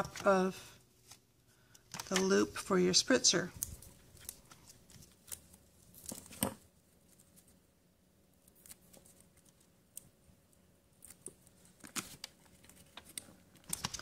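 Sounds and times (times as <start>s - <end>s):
plastic and tape crackling: 3.5s - 7.6s, 8.4s - 14.0s.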